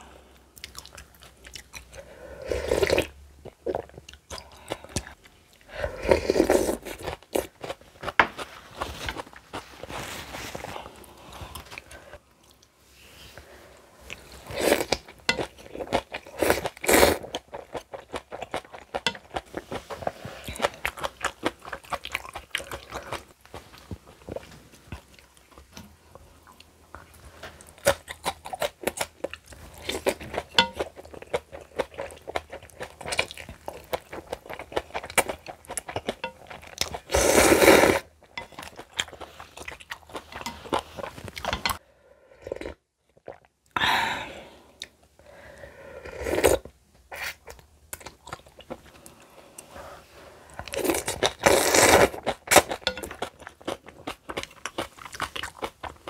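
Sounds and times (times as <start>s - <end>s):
person crunching and chewing: 14.2s - 25.7s, 26.5s - 41.8s, 50.5s - 56.0s.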